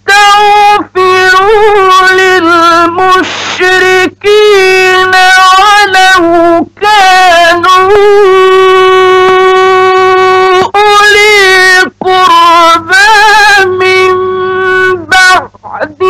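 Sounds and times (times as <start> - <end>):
man chanting melodically: 0.0 - 16.0.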